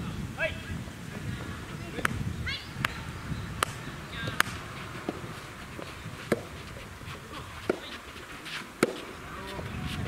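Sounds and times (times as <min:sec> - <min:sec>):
tennis rackets hitting ball: 0:03.6 - 0:09.7.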